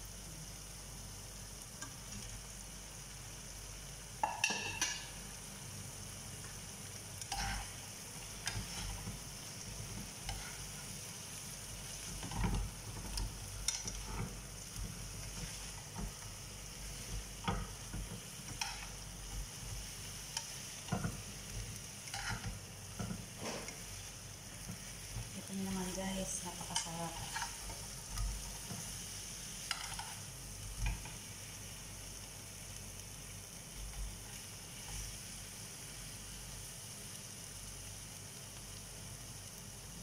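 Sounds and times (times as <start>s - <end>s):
chicken wings sizzling in a pan: 0.0s - 40.0s
utensils scraping and clicking on pan: 7.2s - 11.0s, 11.8s - 31.2s.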